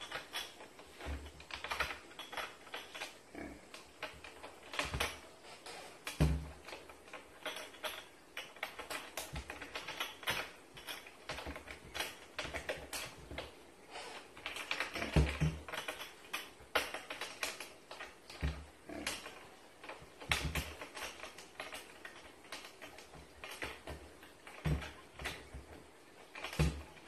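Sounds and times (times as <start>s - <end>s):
pig rattling cupboard doors: 6.0s - 13.6s, 14.4s - 27.0s.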